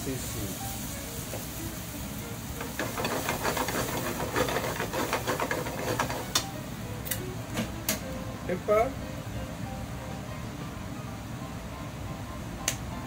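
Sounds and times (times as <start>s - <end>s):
chopsticks stirring: 2.6s - 6.4s
cream bubbling in a frying pan: 2.8s - 6.4s.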